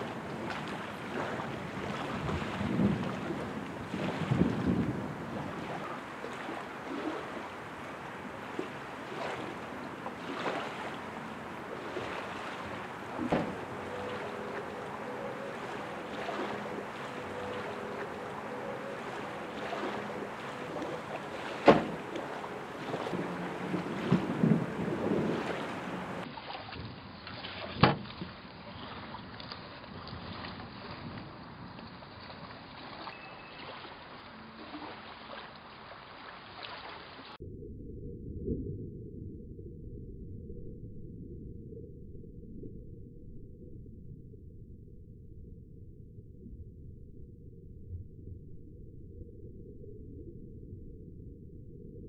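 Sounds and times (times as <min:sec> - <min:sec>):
wind noise: 0:00.0 - 0:06.2, 0:06.8 - 0:27.2
low rumble: 0:10.9 - 0:26.3, 0:37.4 - 0:52.0.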